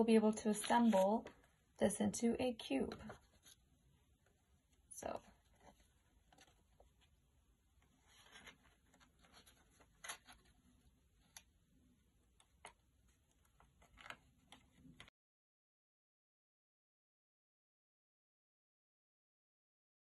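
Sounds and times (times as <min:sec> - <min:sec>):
paper rustling and crinkling: 0:00.5 - 0:01.4, 0:07.8 - 0:11.4, 0:12.6 - 0:15.1.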